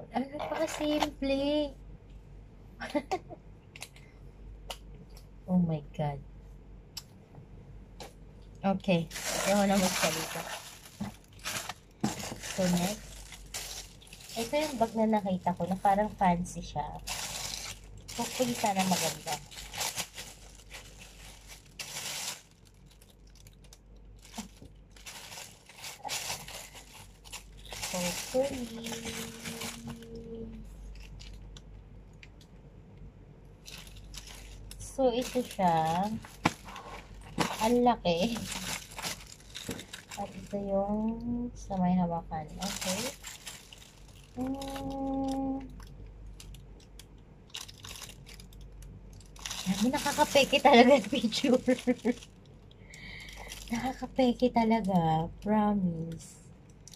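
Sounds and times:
plastic bag crinkling: 8.8s - 31.7s, 33.6s - 41.0s, 42.4s - 54.9s
plastic wrapping rustling: 8.8s - 32.4s, 33.6s - 41.2s, 42.4s - 54.9s
woman humming: 44.4s - 45.7s.

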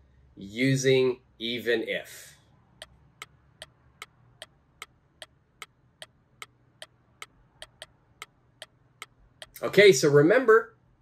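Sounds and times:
clock ticking: 2.8s - 9.6s.

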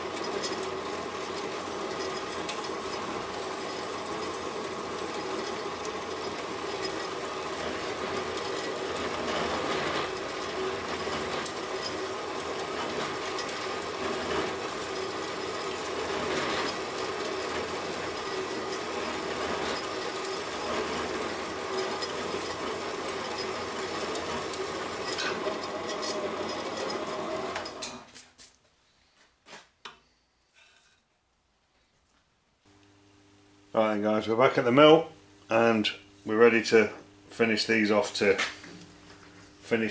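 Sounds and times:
bandsaw cutting metal: 0.0s - 28.1s.

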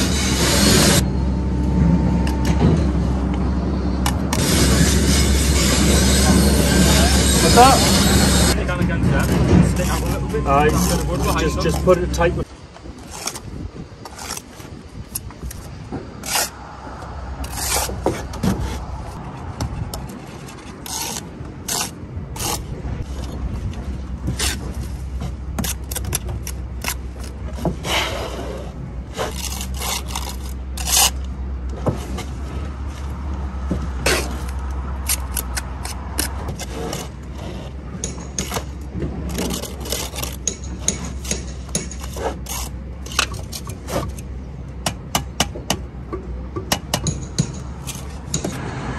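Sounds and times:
trowel scraping mortar: 4.0s - 12.3s, 13.0s - 16.6s, 17.4s - 19.2s, 19.8s - 23.4s, 24.2s - 31.3s, 34.0s - 44.3s
trowel knocking bricks: 33.7s - 44.2s.

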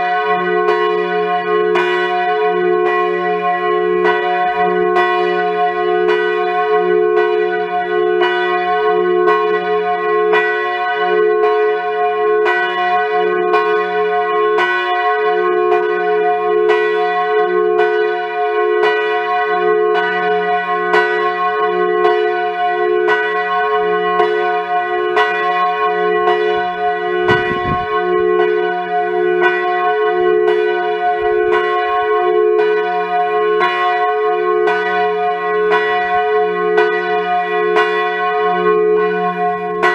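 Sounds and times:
big bell pealing: 25.0s - 33.0s, 35.7s - 39.9s.

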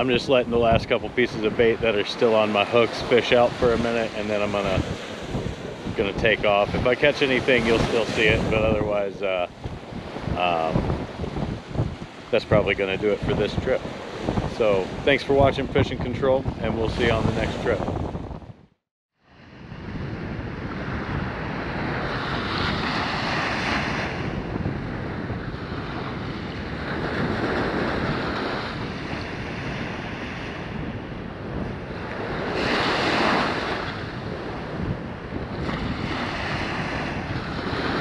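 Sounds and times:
waves washing onto beach: 0.0s - 18.1s, 19.3s - 38.0s
wind noise on microphone: 0.0s - 38.0s.

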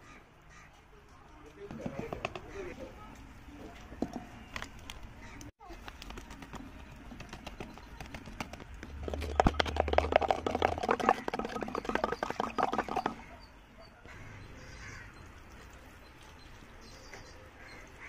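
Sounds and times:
stick stirring in clay pot: 5.9s - 13.4s.

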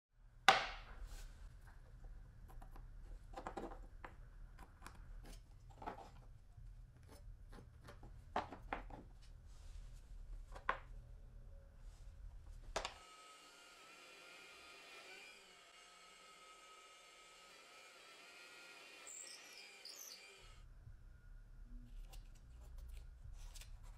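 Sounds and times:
faint low hum: 1.2s - 12.9s, 20.5s - 23.9s.

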